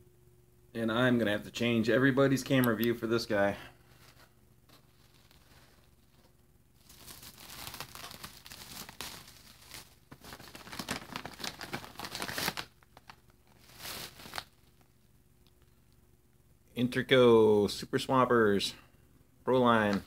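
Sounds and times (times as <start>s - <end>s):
bubble wrap crinkling: 4.1s - 15.0s.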